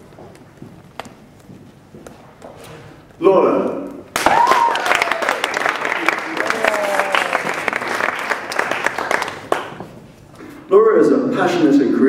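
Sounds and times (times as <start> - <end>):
voices over clapping: 4.2 - 8.3
audience applauding: 4.2 - 9.9.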